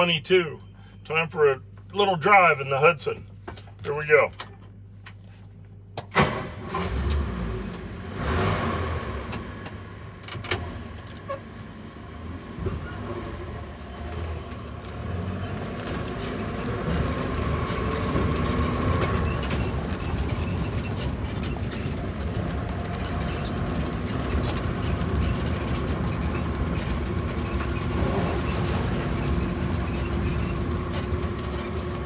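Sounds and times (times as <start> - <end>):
truck engine running: 10.8 - 32.0.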